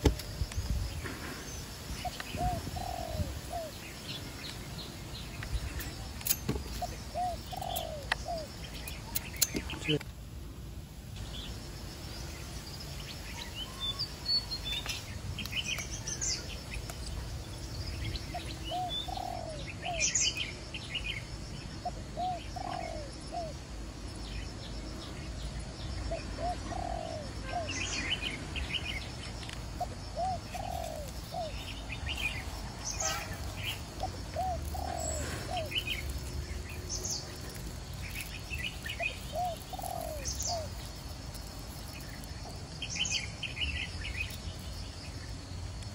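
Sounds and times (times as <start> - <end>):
small birds chirping: 0.0 - 45.9.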